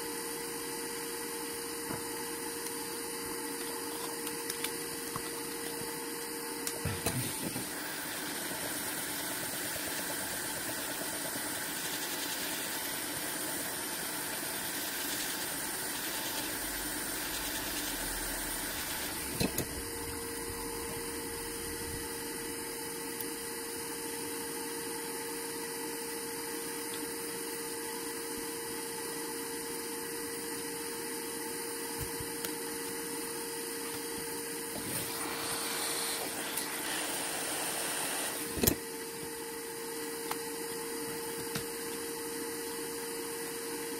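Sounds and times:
small motor whirring: 7.0 - 23.3, 34.6 - 39.4.

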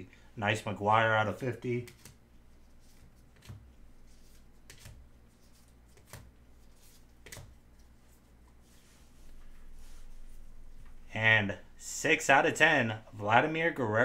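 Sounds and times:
faint rustling: 6.6 - 11.1.

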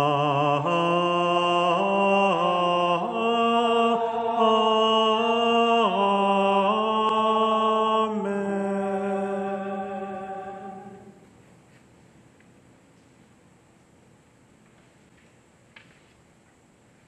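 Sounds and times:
choir singing sustained chords: 0.0 - 11.4.

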